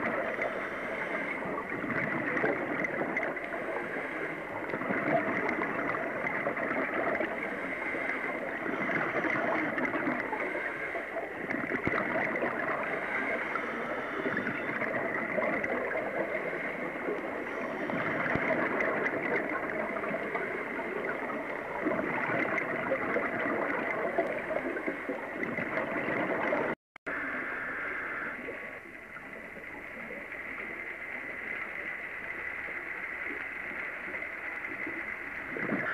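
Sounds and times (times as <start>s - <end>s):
underwater hiss and gurgling: 0.0s - 35.9s.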